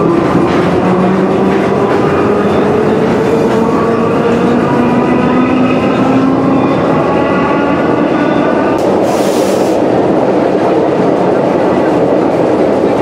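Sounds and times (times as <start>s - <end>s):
metro car running on rails: 0.0s - 13.0s
hiss: 9.0s - 9.8s.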